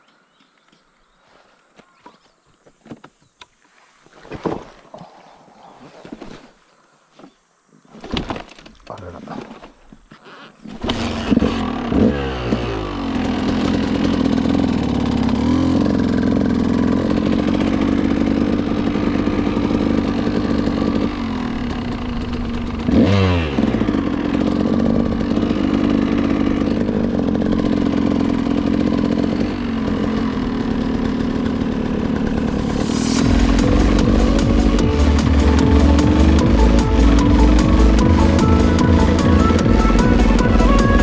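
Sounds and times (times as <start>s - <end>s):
motorcycle engine running: 10.7s - 41.0s.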